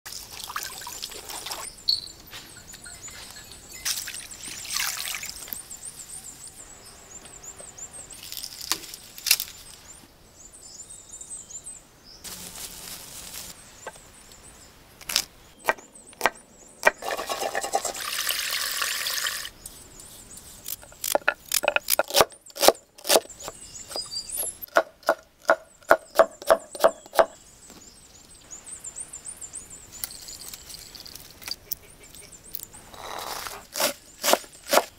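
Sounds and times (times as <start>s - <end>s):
faint high chirping: 0.9s - 8.4s.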